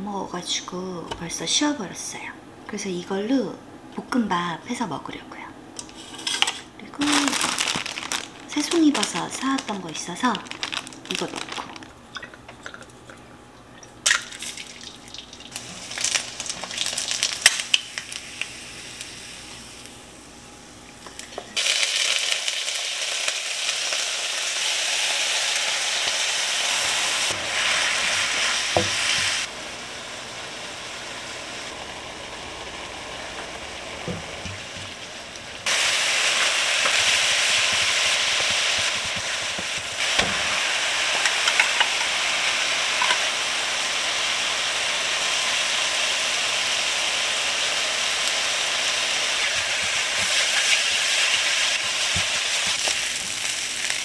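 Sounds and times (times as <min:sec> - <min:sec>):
food sizzling in a hot pan: 0:14.4 - 0:20.0, 0:21.6 - 0:54.0.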